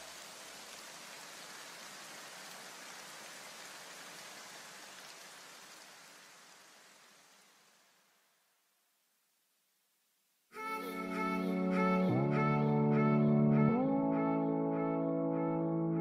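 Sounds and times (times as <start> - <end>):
steady white noise hiss: 0.0 - 12.6.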